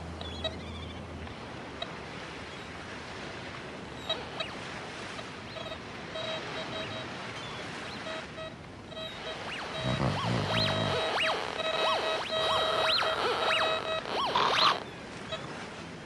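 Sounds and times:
ocean surf: 1.3s - 16.0s
metal detector beeps: 5.5s - 7.2s, 7.8s - 15.5s.

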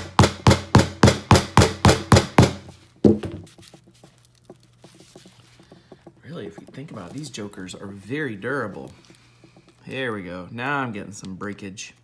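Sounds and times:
hammer striking metal case: 0.0s - 3.5s.

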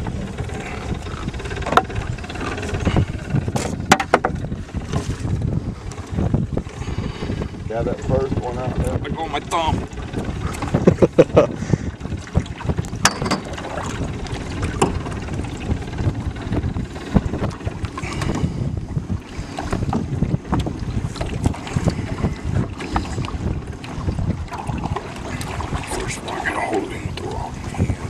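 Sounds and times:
wind buffeting microphone: 0.0s - 28.0s
clicks and knocks in boat: 0.1s - 5.3s, 12.0s - 18.5s, 19.4s - 26.1s.

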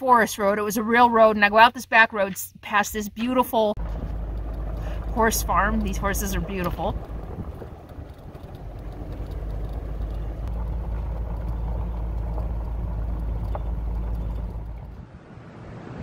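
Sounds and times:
vehicle driving on gravel: 3.8s - 16.0s.

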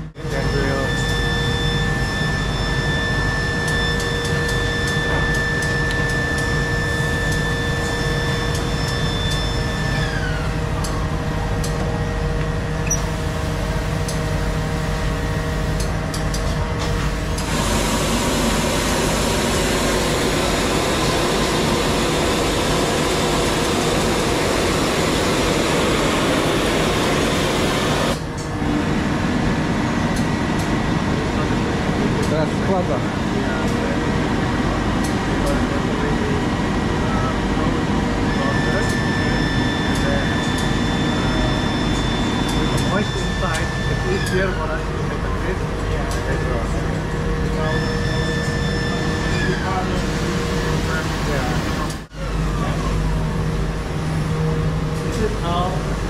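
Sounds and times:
machine room hum: 0.0s - 56.0s
machine whine: 0.0s - 56.0s
loud air hiss: 16.8s - 28.2s.

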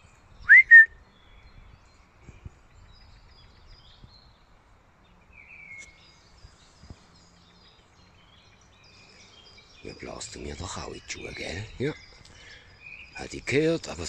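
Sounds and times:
forest ambience: 0.0s - 14.0s
songbird chirps and calls: 0.0s - 14.0s.

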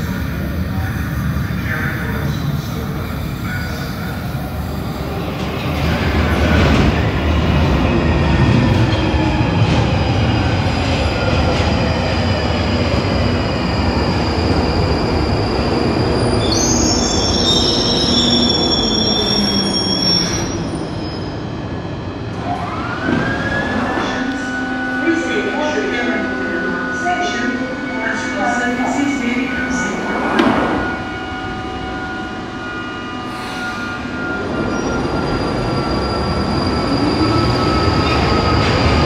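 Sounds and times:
train rumbling in: 0.0s - 39.0s
wheel and brake squeals: 16.4s - 21.3s.

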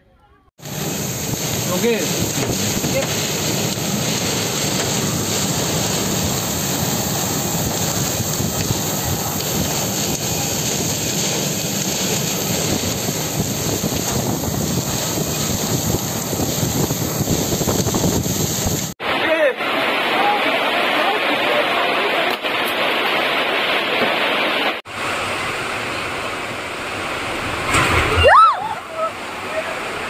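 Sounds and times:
wind buffeting microphone: 0.6s - 19.0s
heavy rain: 0.6s - 30.0s.

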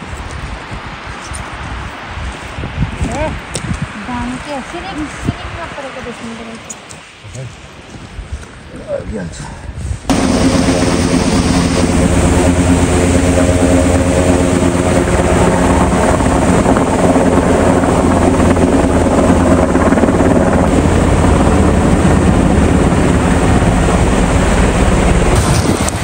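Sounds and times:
helicopter flying overhead: 10.1s - 26.0s.

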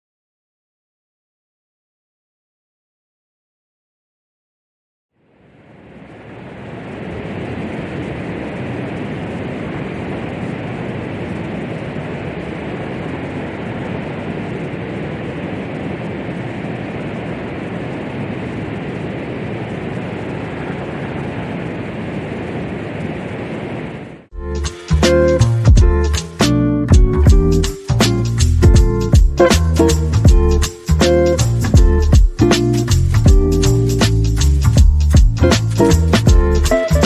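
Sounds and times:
steady rushing noise: 5.2s - 37.0s
strummed guitar music: 24.4s - 37.0s.

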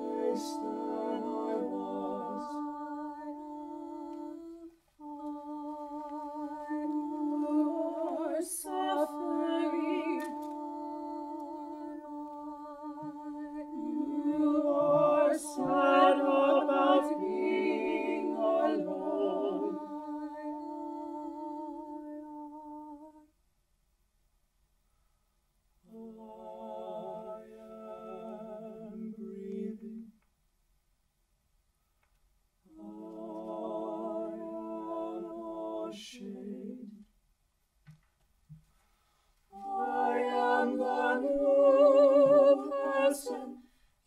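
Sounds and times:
a cappella ensemble singing: 0.0s - 23.3s, 25.8s - 30.3s, 32.6s - 37.2s, 38.8s - 44.0s.

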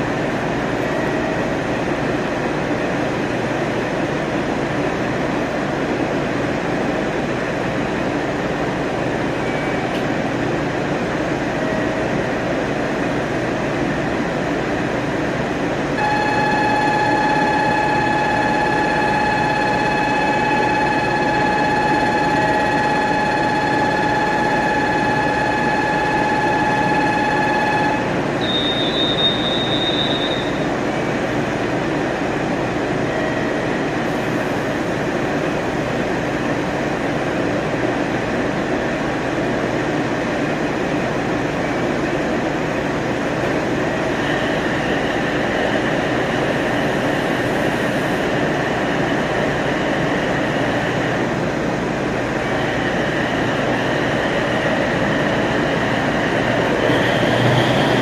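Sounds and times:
diesel railcar moving slowly: 0.0s - 58.0s
high wheel squeal: 16.0s - 30.7s, 52.5s - 58.0s.

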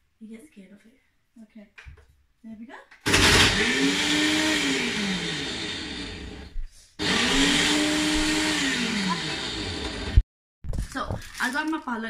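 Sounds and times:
blender motor running: 3.1s - 10.2s.

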